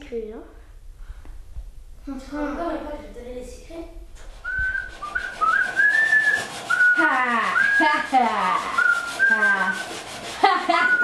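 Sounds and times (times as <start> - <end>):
child whistling a tune: 4.4 - 7.8, 8.7 - 9.8.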